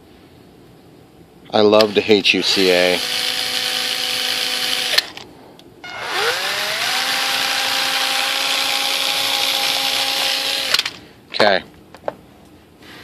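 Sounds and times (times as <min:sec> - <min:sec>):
cordless drill running: 0:01.8 - 0:05.1, 0:05.9 - 0:11.0.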